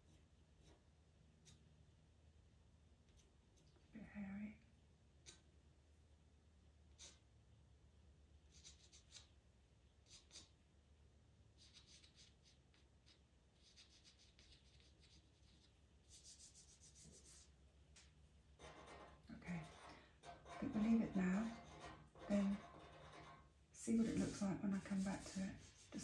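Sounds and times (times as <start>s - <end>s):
pastel pencil scratching paper: 8.5s - 9.3s, 10.0s - 10.5s, 11.6s - 17.5s, 18.6s - 26.0s.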